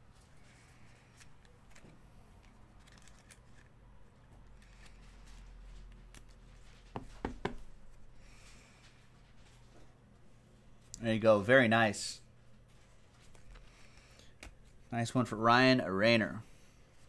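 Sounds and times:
handling of a card holder: 0.5 - 6.5.

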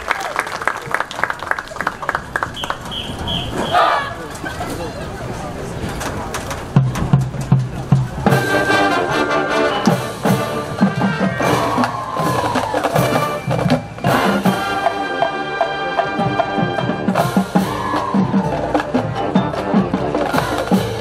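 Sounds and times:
drumline percussion: 5.9 - 21.0
brass chords: 8.2 - 21.0.

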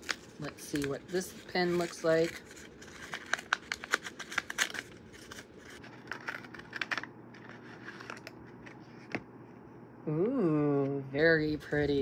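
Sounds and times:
paper wrapping crinkling and tearing: 0.0 - 8.8.

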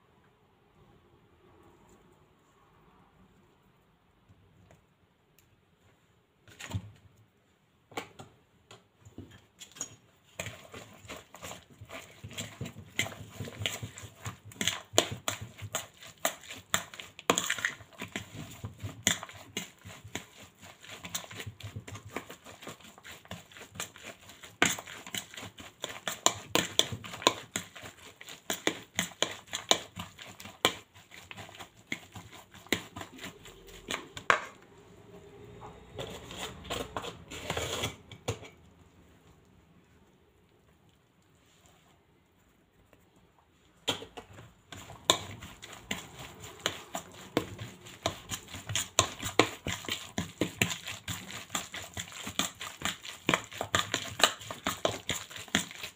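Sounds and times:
fork scraping against a bowl: 36.0 - 38.5.

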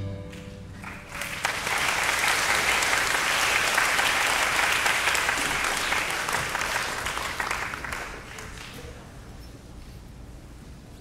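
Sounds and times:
audience applause: 0.3 - 9.2.

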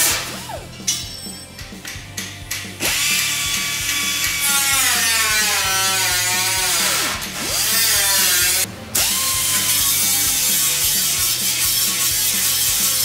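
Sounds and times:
angle grinder grinding steel: 2.8 - 13.0.

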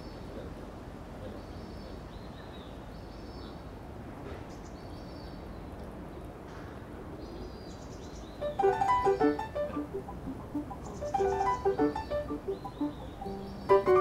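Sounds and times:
steady background hiss: 0.0 - 14.0
bird chirping: 7.2 - 14.0
piano music: 8.4 - 14.0.

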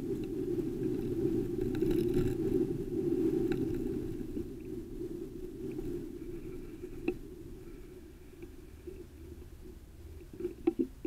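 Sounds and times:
wind and road rumble: 0.0 - 11.0
faint clicks and rattles: 5.6 - 11.0.

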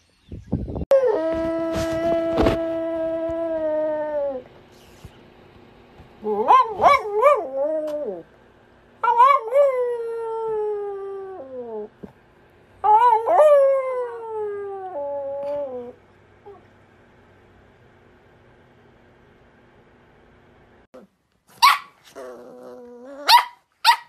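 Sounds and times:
dog howling: 0.9 - 4.5.

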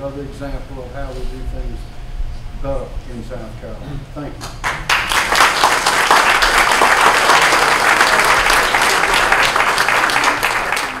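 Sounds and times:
audience applauding: 4.6 - 11.0.

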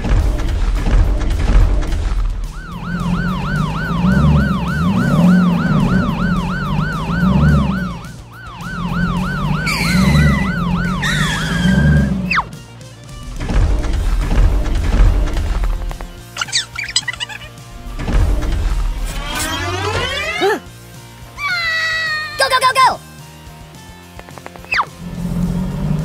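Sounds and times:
background music: 0.0 - 26.0
police siren yelp: 2.5 - 12.5
short screeching bursts: 9.6 - 12.4, 19.0 - 20.6.

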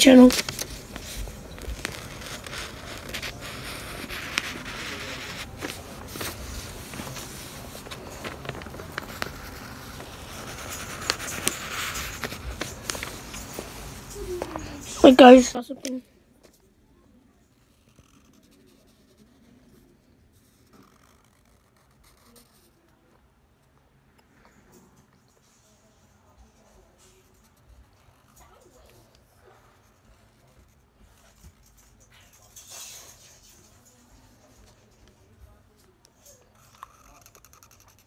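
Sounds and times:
marker scratching on paper: 0.0 - 16.0, 20.4 - 22.8, 36.6 - 38.0.

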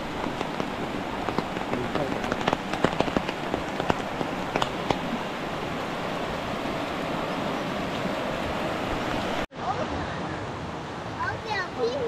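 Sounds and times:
raindrop taps: 0.0 - 5.7
steady rain hiss: 0.0 - 12.0.

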